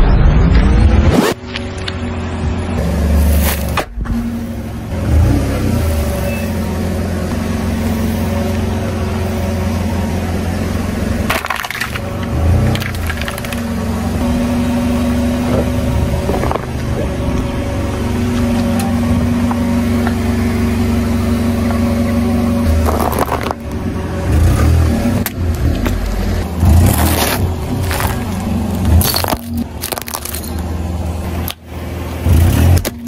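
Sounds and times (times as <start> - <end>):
car engine idling: 1.4 - 33.0
tyre crushing objects on asphalt: 11.3 - 13.7, 22.7 - 23.8, 25.2 - 30.7.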